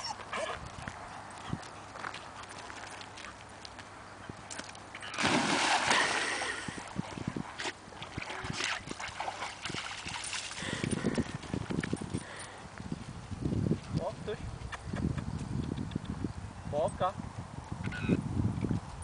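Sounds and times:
dog paddling through water: 4.5 - 11.8
dog splashing into water: 5.0 - 11.8.

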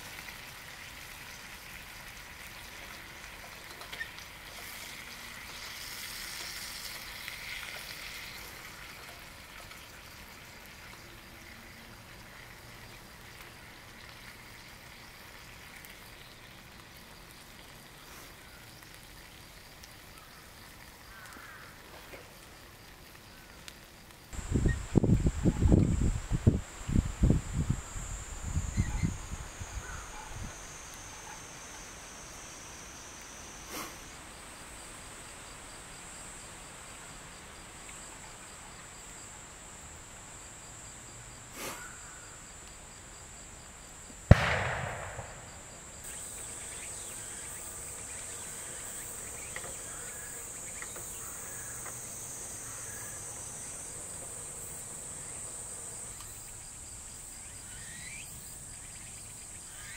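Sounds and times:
insects shrilling: 22.8 - 36.4, 44.3 - 59.9
loud bang with echo: 44.3 - 46.0
faint sharp cracks: 44.3 - 47.7.

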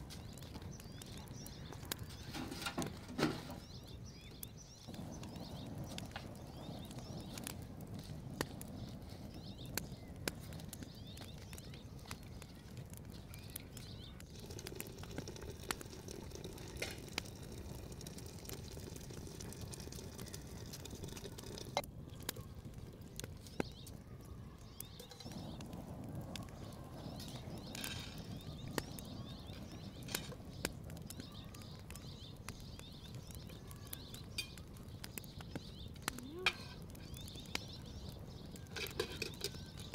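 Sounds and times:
faint birds chirping: 0.0 - 39.9
metal ladle clinking in pot: 38.7 - 39.6.

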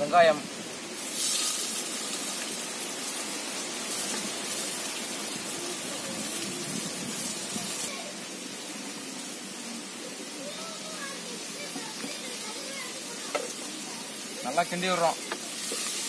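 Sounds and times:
onions sizzling in hot oil: 0.0 - 16.0.

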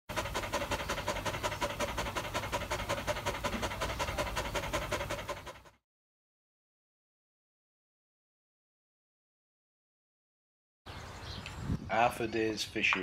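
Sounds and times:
dog panting: 0.1 - 5.8.

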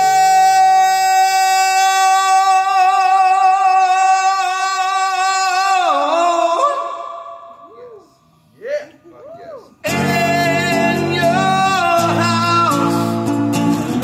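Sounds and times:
man singing a high note: 0.0 - 8.9, 9.8 - 13.3.

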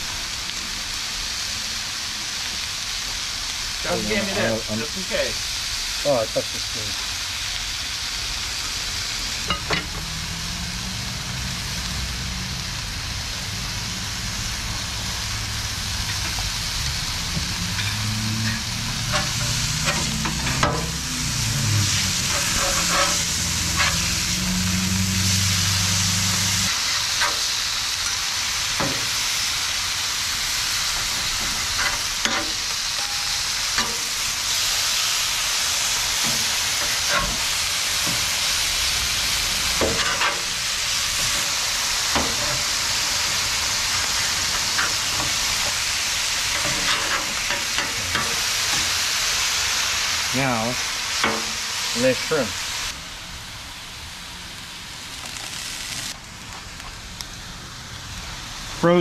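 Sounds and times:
steak sizzling on griddle: 0.0 - 59.0
metal spatula scraping: 17.7 - 24.3, 36.2 - 38.2, 46.4 - 48.9.

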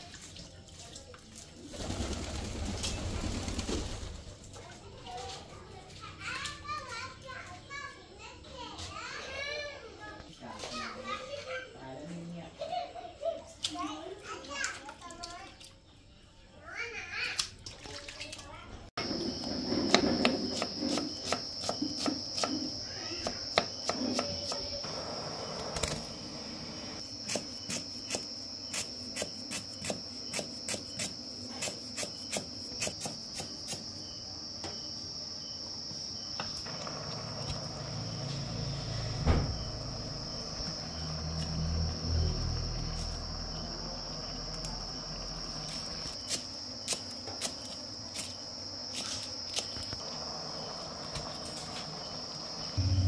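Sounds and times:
steady high-pitched tone: 52.8 - 53.0.

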